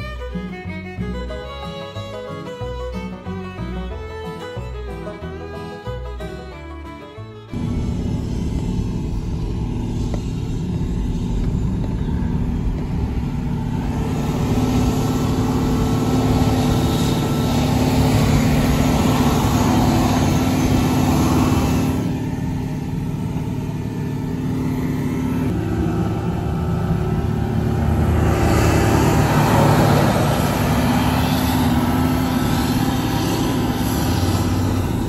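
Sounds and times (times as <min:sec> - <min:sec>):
vehicle engine hum inside cab: 0:07.5 - 0:35.0.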